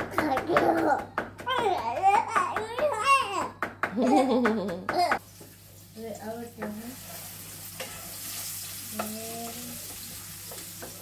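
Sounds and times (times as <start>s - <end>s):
food sizzling in frying pan: 5.2s - 11.0s.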